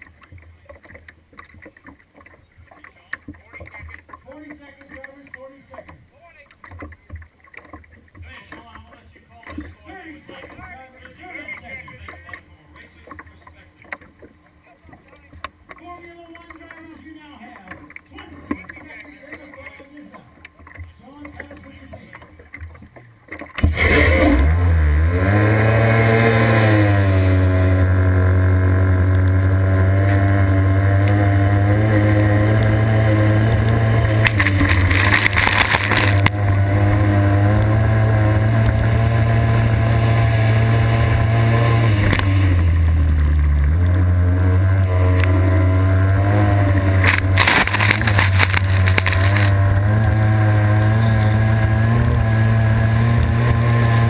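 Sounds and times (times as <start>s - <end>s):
racing boat engine revving: 23.5s - 54.0s.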